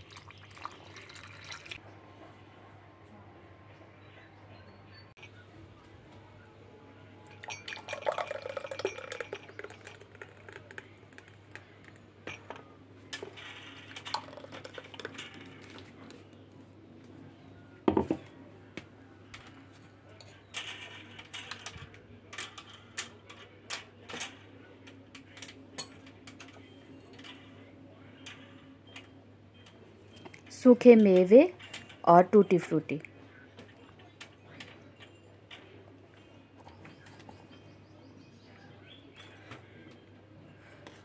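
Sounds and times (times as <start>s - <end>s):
steel spoon clinking on glass: 7.4s - 10.1s
thick shake pouring into glass: 7.5s - 10.2s.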